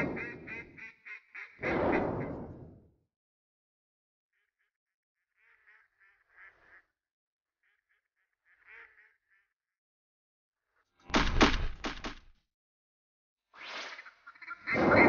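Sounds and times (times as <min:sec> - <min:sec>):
faint waterfowl calls: 0:00.0 - 0:02.4, 0:04.4 - 0:09.7.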